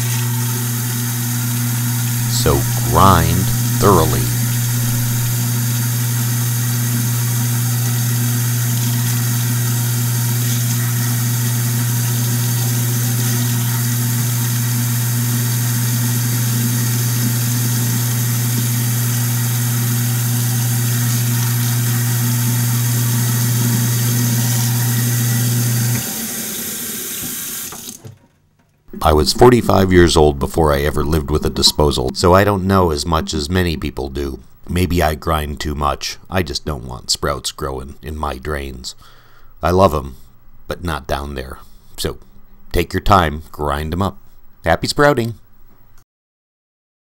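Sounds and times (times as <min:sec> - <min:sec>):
garbage disposal grinding: 0:00.0 - 0:28.0
tap water pouring into drain: 0:04.4 - 0:28.1.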